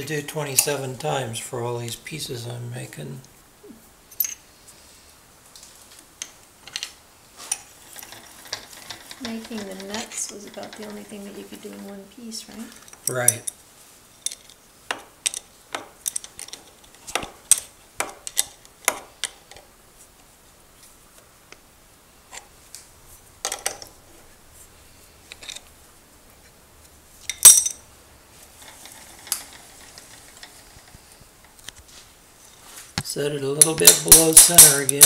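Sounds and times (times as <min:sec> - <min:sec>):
metal clinks and clicks: 0:27.3 - 0:27.8, 0:33.6 - 0:35.0.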